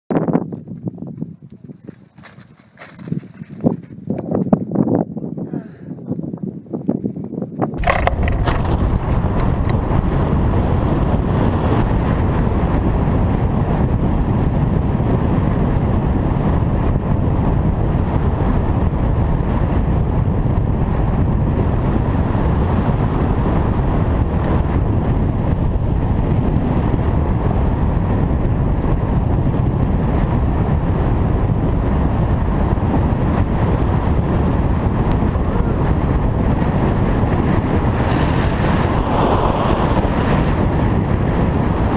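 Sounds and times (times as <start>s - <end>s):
wind rushing over microphone: 0.1s - 41.9s.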